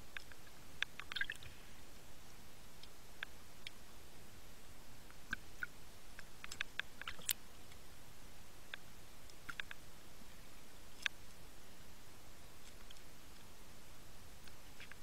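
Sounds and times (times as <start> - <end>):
sharp clicks and crackles: 5.1 - 7.8, 8.7 - 9.8.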